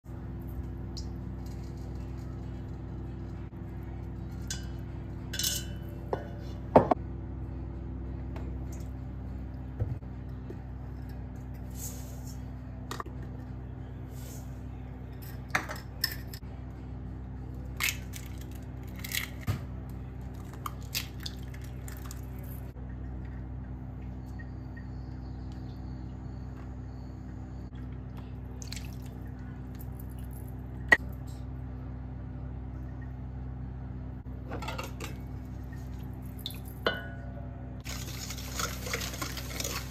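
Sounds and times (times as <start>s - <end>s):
low hum: 0.1s - 39.9s
spoon clinking on metal bowl: 4.5s - 6.3s.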